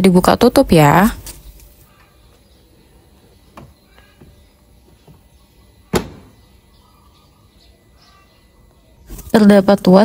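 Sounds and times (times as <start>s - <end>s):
plastic door snapping shut: 5.9s - 6.4s.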